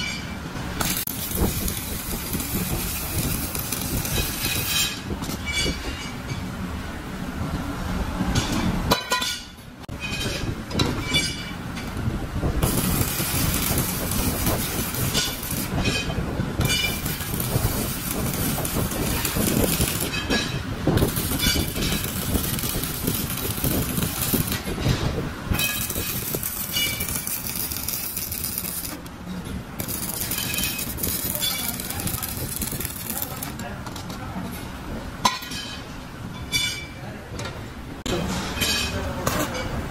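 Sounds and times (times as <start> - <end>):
welding arc crackling: 0.7 - 5.5, 12.5 - 33.8.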